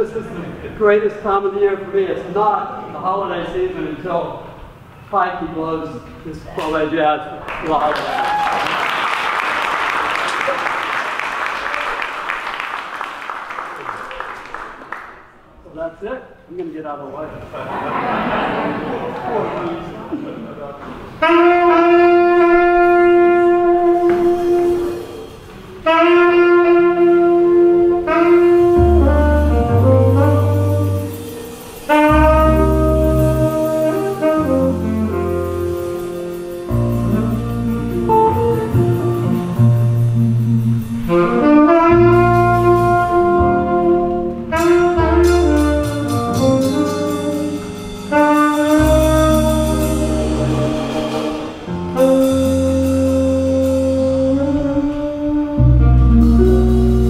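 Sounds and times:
bass line: 21.2s - 57.0s
drum kit: 21.2s - 57.0s
saxophone melody: 21.2s - 57.0s.

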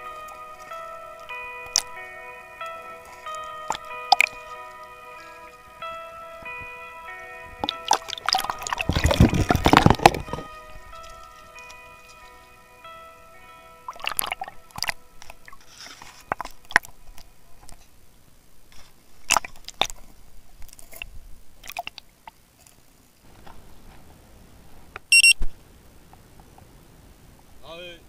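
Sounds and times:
underwater clicks and knocks: 7.6s - 10.5s.

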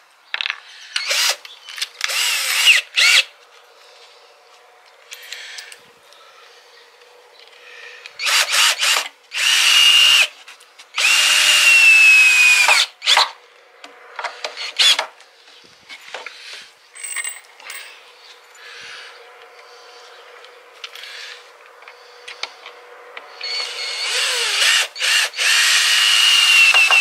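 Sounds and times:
electric drill whine: 1.0s - 1.4s, 2.0s - 3.3s, 8.2s - 10.3s, 11.0s - 13.2s, 23.4s - 27.0s.

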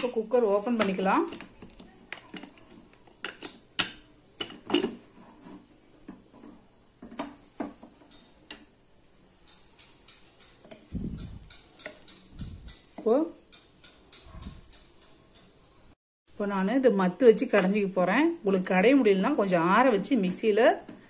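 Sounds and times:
wooden spoon scraping pot: 4.4s - 8.7s, 9.3s - 15.0s.

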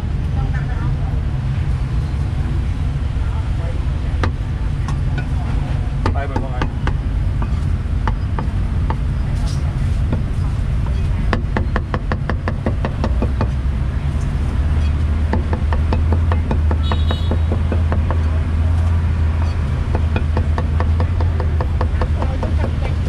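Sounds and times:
street traffic rumble: 0.0s - 23.0s
cleaver chopping on wooden block: 11.3s - 13.6s, 15.3s - 18.3s, 19.9s - 22.8s.

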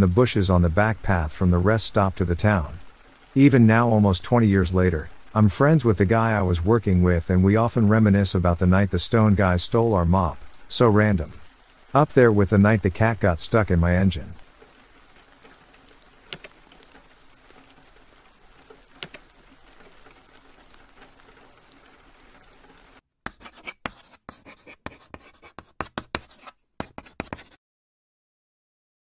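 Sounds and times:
faint steady rain: 0.0s - 27.5s
irregular sharp clicks and scratches: 14.4s - 21.9s, 23.3s - 27.6s.

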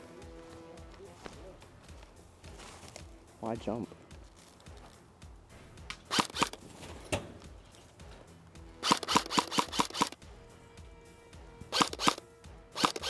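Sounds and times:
faint background music: 0.0s - 13.0s
airsoft rifle shots: 6.0s - 6.6s, 8.8s - 10.2s, 11.7s - 12.2s, 12.8s - 13.0s.

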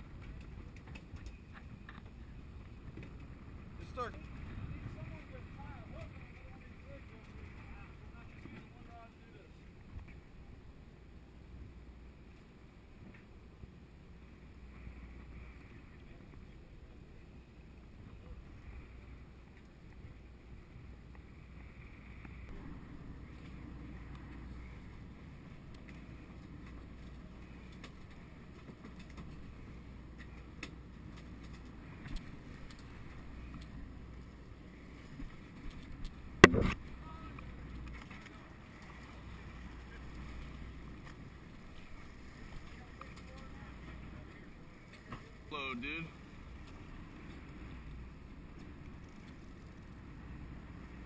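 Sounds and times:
water around boat: 0.0s - 51.0s
wind: 0.0s - 51.0s
sharp loud knock: 36.4s - 36.8s.

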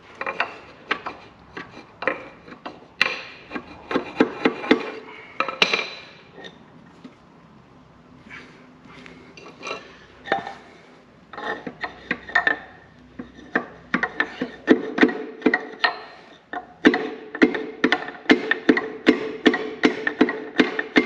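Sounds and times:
hammer striking metal: 16.8s - 21.0s.

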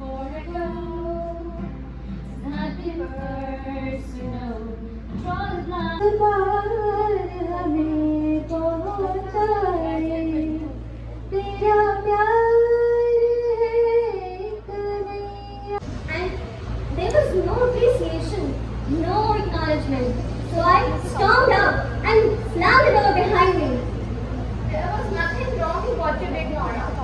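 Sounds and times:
woman singing into a microphone: 0.0s - 15.8s
low steady hum: 0.0s - 27.0s.

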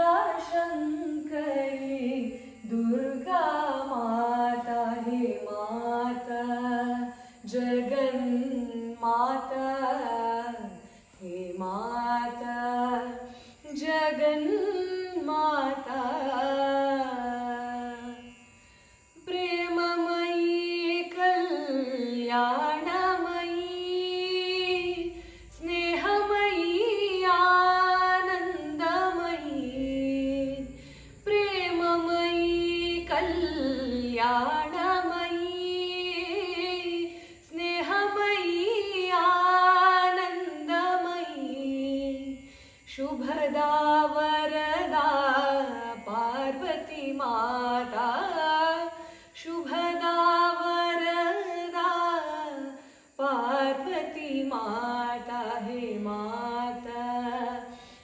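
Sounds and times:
woman singing devotional song: 0.0s - 58.0s
singer breathing: 30.7s - 31.2s, 42.4s - 42.9s, 49.0s - 49.3s, 57.7s - 58.0s.

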